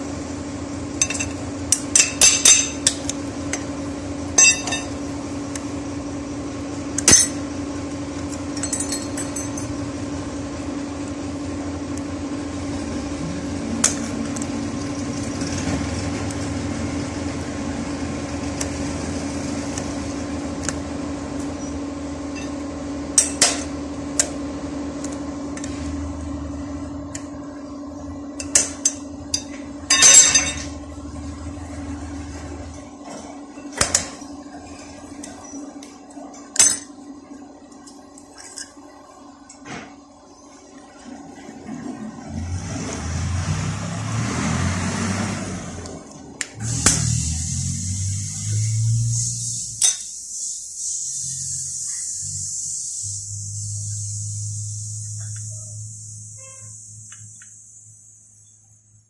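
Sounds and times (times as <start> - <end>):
steady machine hum: 0.0 - 44.3, 45.3 - 59.0
hand tools clinking on metal: 1.0 - 3.0, 4.4 - 5.0, 8.5 - 9.8, 28.4 - 30.8, 36.4 - 37.0.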